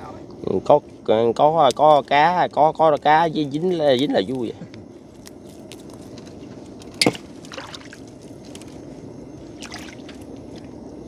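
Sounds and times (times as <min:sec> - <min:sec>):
water splashing and trickling: 0:07.0 - 0:08.0, 0:09.5 - 0:10.7.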